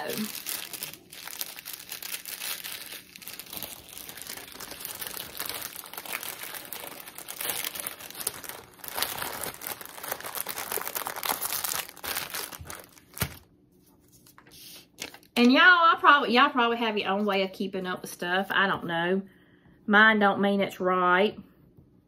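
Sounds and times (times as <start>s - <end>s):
plastic bags crinkling: 0.0s - 13.5s.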